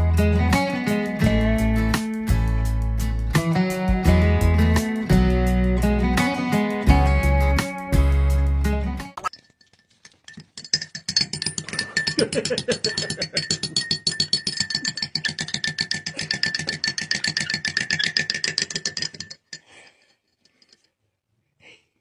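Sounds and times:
teaspoon clinking against ceramic mug: 9.2s - 19.8s.

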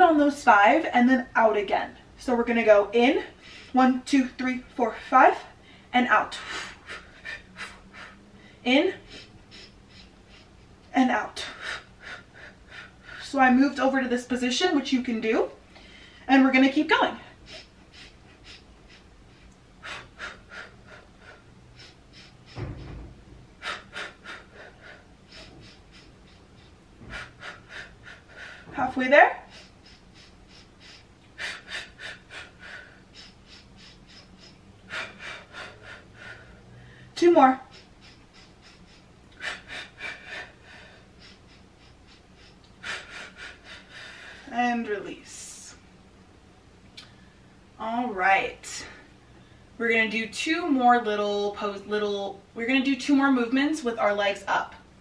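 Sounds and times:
woman breathing sharply: 15.7s - 16.3s, 17.3s - 28.8s, 29.4s - 44.5s
low thud: 22.5s - 23.5s.

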